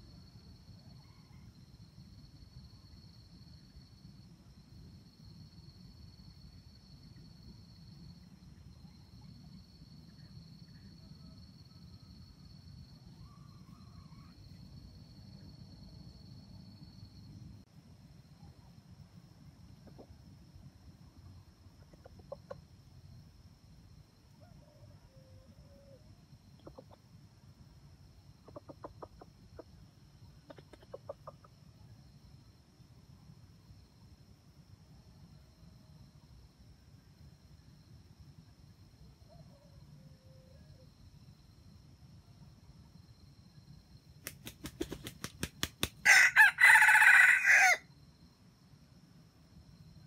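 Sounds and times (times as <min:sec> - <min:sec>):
junglefowl clucking: 0:26.6 - 0:27.0, 0:28.4 - 0:29.7, 0:30.5 - 0:31.5
rooster wing-clapping: 0:44.3 - 0:46.2
rooster crowing: 0:46.0 - 0:47.9.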